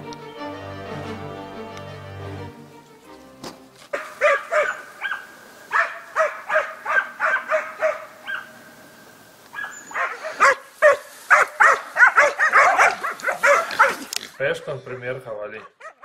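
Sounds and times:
puppy barking: 0:04.0 - 0:08.5, 0:09.5 - 0:14.1, 0:15.6 - 0:16.0.

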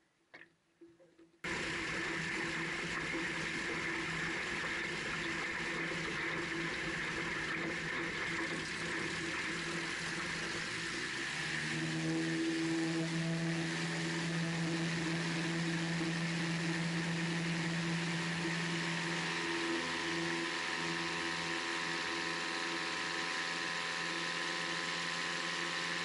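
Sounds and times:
water noise: 0:00.3 - 0:26.0
plane engine and propeller: 0:10.0 - 0:26.0.

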